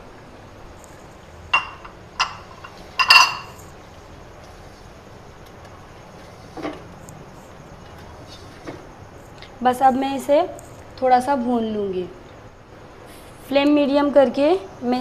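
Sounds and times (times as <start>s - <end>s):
metal spoon clinking glass bowl: 1.6s - 3.6s.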